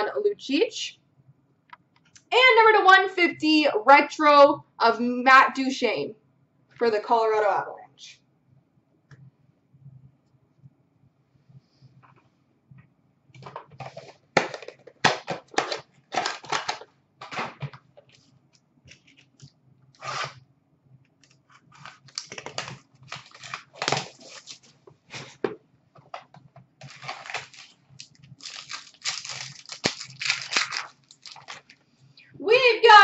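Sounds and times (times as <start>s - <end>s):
plastic wrapper tearing and crinkling: 15.5s - 17.4s, 21.2s - 24.8s, 26.8s - 31.8s
cards rustling: 21.2s - 25.4s, 26.8s - 31.8s.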